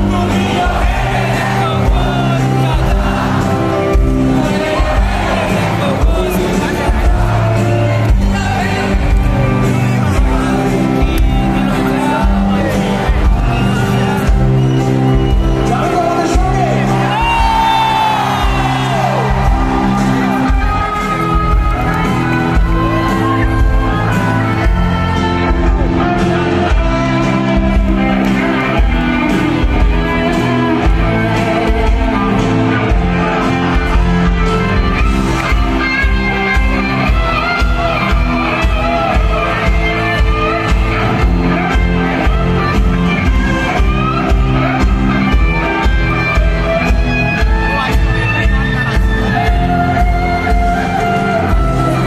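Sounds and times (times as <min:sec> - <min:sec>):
crowd shouting: 0:00.0 - 0:26.9
live band playing: 0:00.0 - 0:52.0.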